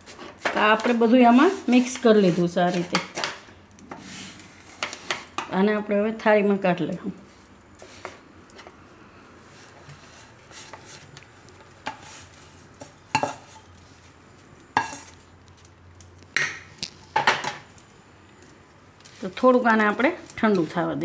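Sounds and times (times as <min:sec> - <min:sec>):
spatula scraping a wok: 0:00.0 - 0:05.5, 0:07.3 - 0:08.7, 0:09.4 - 0:14.0, 0:14.7 - 0:15.2.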